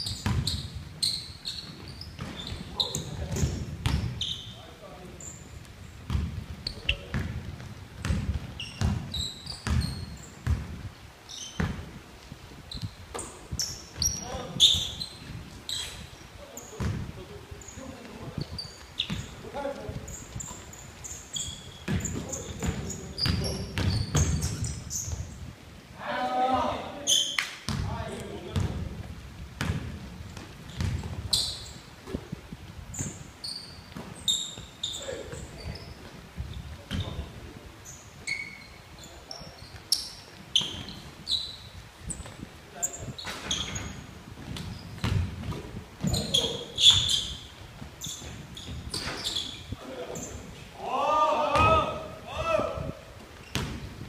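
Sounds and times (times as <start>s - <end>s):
basketball bouncing on wooden floor: 0.0s - 0.8s, 1.6s - 4.2s, 6.1s - 10.8s, 16.8s - 17.1s, 21.8s - 24.7s, 27.7s - 27.9s, 28.5s - 29.0s, 29.6s - 32.3s, 44.4s - 47.2s, 53.5s - 53.9s
sneakers squeaking on floor: 0.0s - 12.0s, 12.7s - 25.5s, 26.9s - 29.0s, 29.6s - 50.6s, 53.2s - 54.0s
basketball dribbling on wooden floor: 6.1s - 6.4s, 44.4s - 47.0s.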